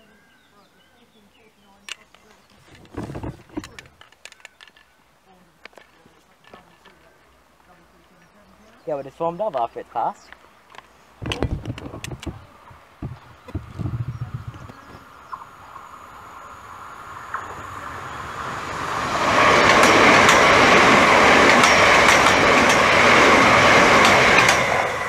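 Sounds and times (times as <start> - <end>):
wheels clicking over rail joints: 1.9 - 5.0, 10.2 - 13.9, 17.3 - 25.0
electric train passing: 11.2 - 25.0.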